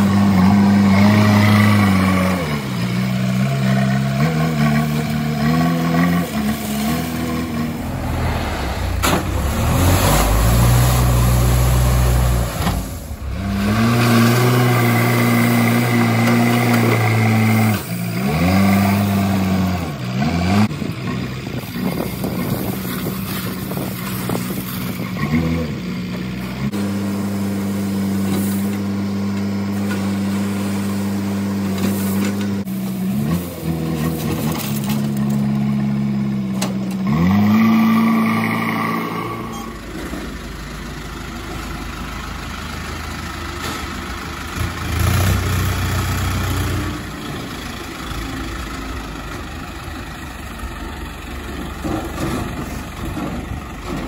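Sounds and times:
diesel engine under load: 0:00.0 - 0:54.0
heavy low rumble: 0:06.6 - 0:16.5.

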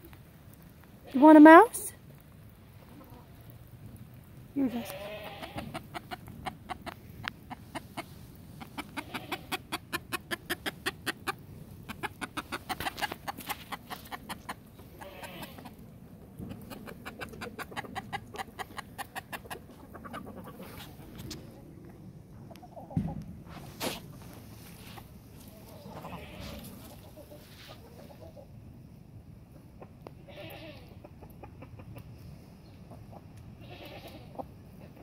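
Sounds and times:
chicken clucking: 0:05.5 - 0:15.8, 0:16.4 - 0:21.6, 0:22.3 - 0:23.2, 0:23.8 - 0:28.6, 0:30.8 - 0:33.4.

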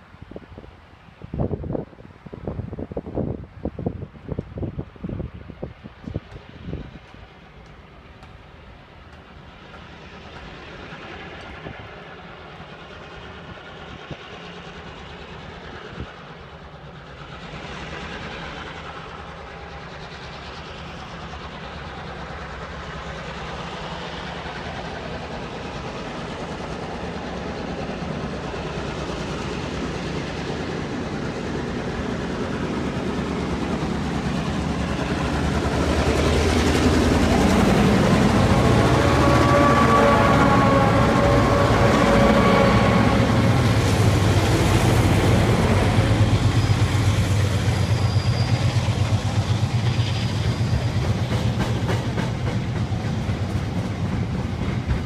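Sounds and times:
diesel locomotives hauling train: 0:00.0 - 0:55.0.

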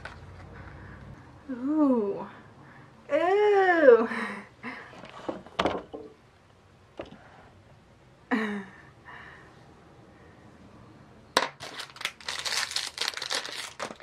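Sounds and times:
packaging crinkling and rustling: 0:11.4 - 0:14.0.

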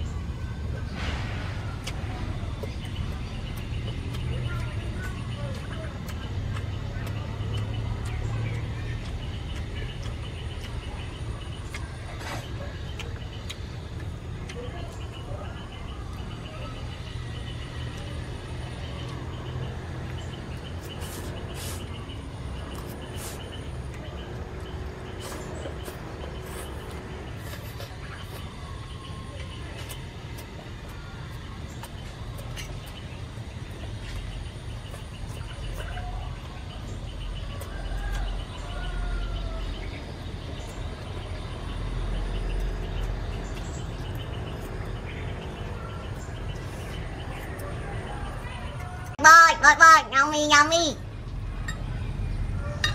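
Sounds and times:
noodles slurped and chewed: 0:01.0 - 0:38.6.

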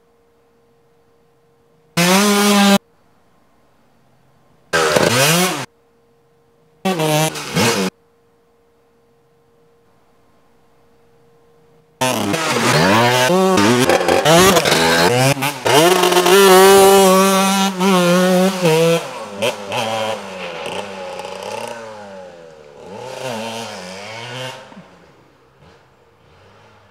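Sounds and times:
motorcycle engine revving: 0:02.0 - 0:02.8, 0:04.8 - 0:05.7, 0:06.9 - 0:08.0, 0:12.0 - 0:26.9.

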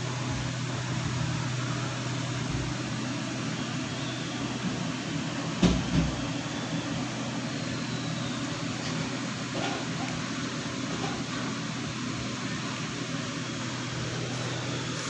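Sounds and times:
droning fan hum: 0:00.0 - 0:15.0.

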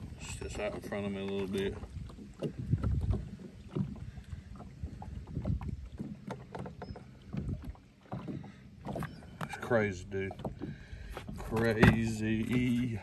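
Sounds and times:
low boat engine rumble: 0:00.0 - 0:13.0
wind buffeting microphone: 0:00.0 - 0:13.0
knocks on boat: 0:10.2 - 0:12.8.

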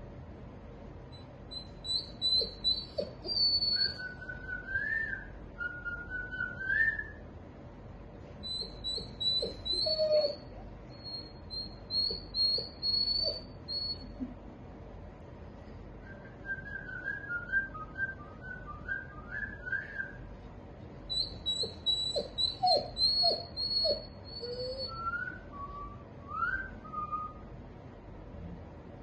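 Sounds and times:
dog whining: 0:01.2 - 0:07.2, 0:08.4 - 0:14.3, 0:21.1 - 0:27.4.

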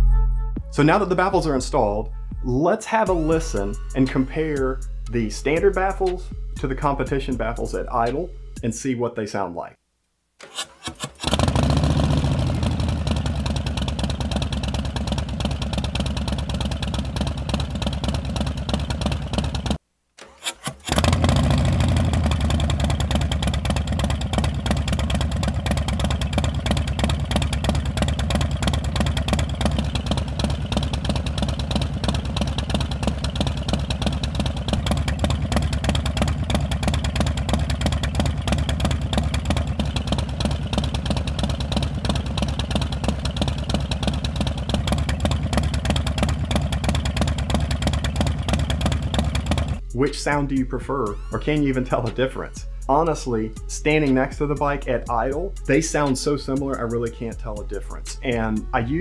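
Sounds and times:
motorcycle engine idling: 0:11.2 - 0:19.8, 0:20.9 - 0:49.8.

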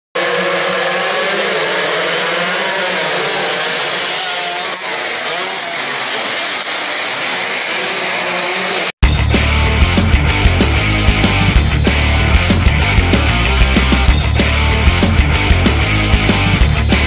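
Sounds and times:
motorcycles revving past: 0:00.2 - 0:09.0.

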